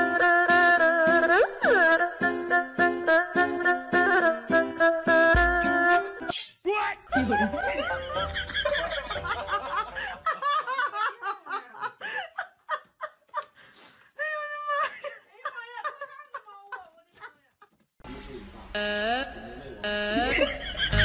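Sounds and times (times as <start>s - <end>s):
people laughing and giggling: 7.1s - 13.6s, 14.4s - 17.8s, 20.1s - 21.0s.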